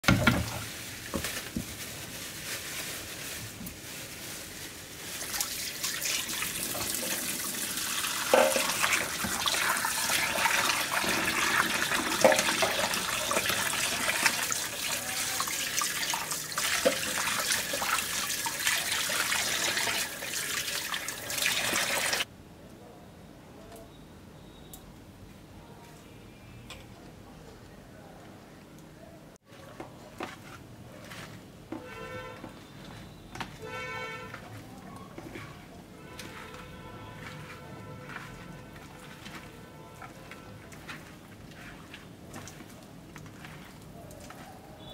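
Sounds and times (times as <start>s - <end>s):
water splashing: 5.1s - 22.3s
tap water running into a bowl: 5.3s - 22.3s.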